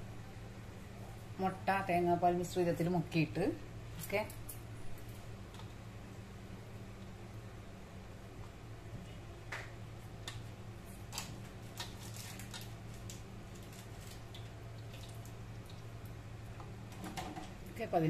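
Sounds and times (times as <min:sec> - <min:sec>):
low steady hum: 0:00.0 - 0:18.0
wet squishes and drips: 0:11.8 - 0:16.2.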